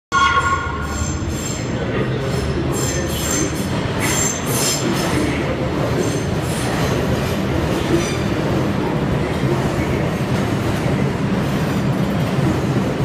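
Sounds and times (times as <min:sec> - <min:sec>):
subway train rumble: 0:00.1 - 0:13.0
train wheels squealing on rails: 0:00.2 - 0:06.9.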